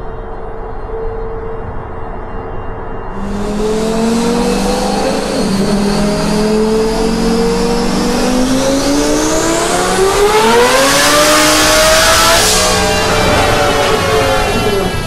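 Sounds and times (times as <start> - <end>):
car engine revving: 3.2 - 15.0.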